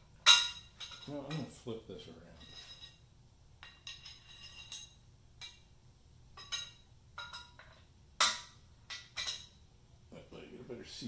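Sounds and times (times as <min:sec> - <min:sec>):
metal parts clinking: 0:06.4 - 0:09.6.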